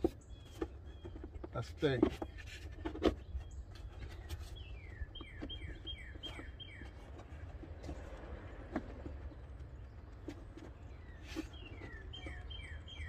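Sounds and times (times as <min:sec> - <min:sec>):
bird singing whistled notes: 0:04.4 - 0:07.0, 0:11.0 - 0:13.0.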